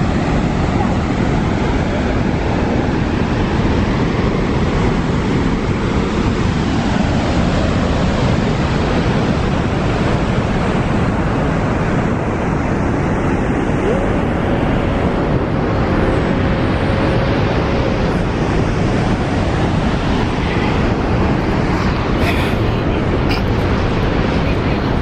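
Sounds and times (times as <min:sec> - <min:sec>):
waterfall roaring: 0:00.0 - 0:25.0
wind rumbling on microphone: 0:00.0 - 0:25.0.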